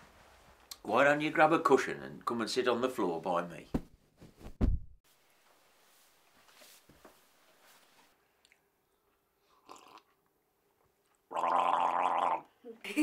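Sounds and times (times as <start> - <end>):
man sipping tea: 9.4 - 10.2.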